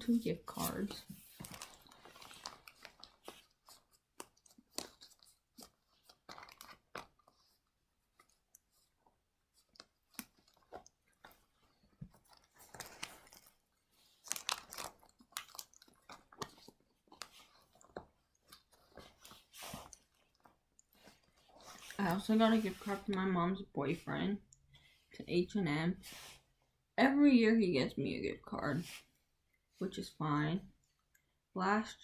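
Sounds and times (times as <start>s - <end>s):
person chewing a cookie: 14.3s - 19.1s.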